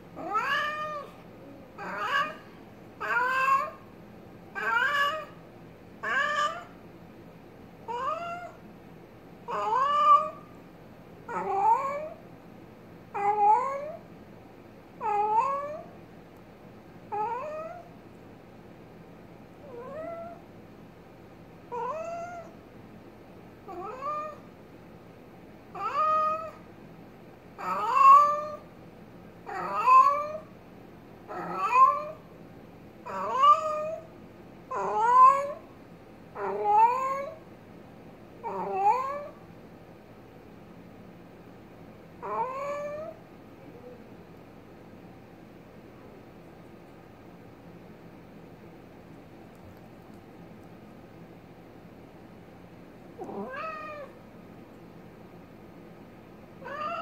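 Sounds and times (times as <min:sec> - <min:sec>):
cat meowing: 0:00.2 - 0:01.2, 0:01.8 - 0:03.8, 0:04.6 - 0:05.4, 0:06.0 - 0:06.8, 0:07.9 - 0:08.6, 0:09.5 - 0:10.4, 0:19.6 - 0:20.4, 0:21.7 - 0:22.5, 0:23.7 - 0:24.4, 0:25.8 - 0:26.6, 0:27.6 - 0:28.6, 0:29.5 - 0:30.5, 0:31.3 - 0:32.2, 0:33.1 - 0:34.1, 0:34.7 - 0:35.6, 0:36.4 - 0:37.4, 0:38.4 - 0:39.4, 0:42.2 - 0:43.2, 0:53.2 - 0:54.2, 0:56.6 - 0:57.0.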